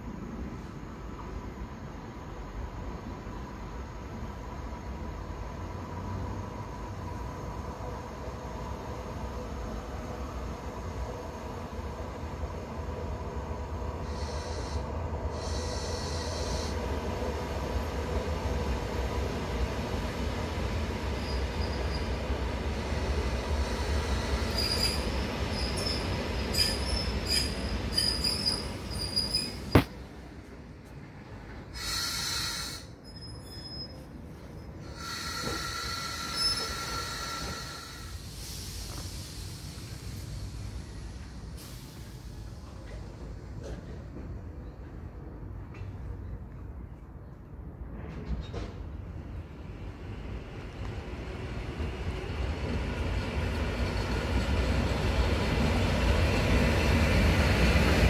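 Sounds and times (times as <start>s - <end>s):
train rumble approaching: 0.0s - 58.0s
high-pitched train squeal: 14.0s - 16.8s, 21.1s - 22.3s, 23.0s - 29.8s, 31.8s - 42.1s.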